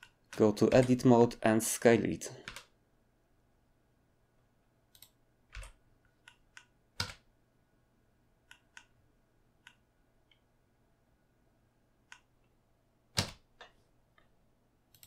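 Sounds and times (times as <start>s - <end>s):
computer keyboard keystrokes: 0.0s - 1.0s, 2.4s - 2.7s, 5.0s - 7.2s, 13.2s - 13.8s
mouse clicks: 8.4s - 9.0s, 9.6s - 10.4s, 12.1s - 12.3s.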